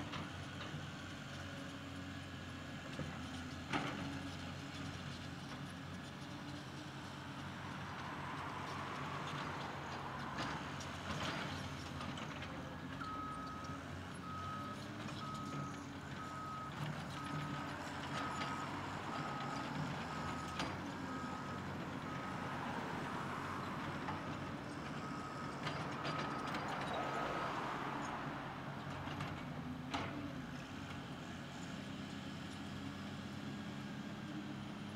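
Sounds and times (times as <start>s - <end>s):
excavator digging dirt: 0.0s - 8.0s, 8.7s - 34.8s.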